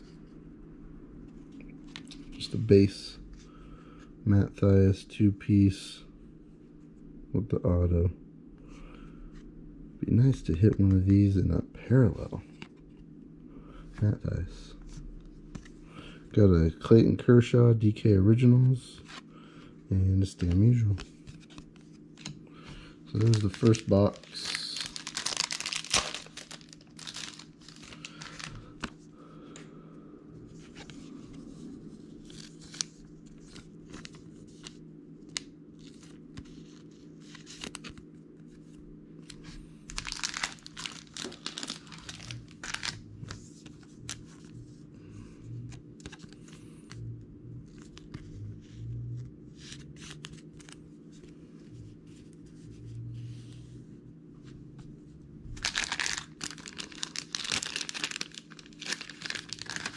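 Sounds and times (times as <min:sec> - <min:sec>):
plastic packaging crinkling: 0:23.1 - 0:29.0, 0:39.9 - 0:43.4, 0:55.6 - 0:59.9
low hum: 0:37.9 - 0:56.2.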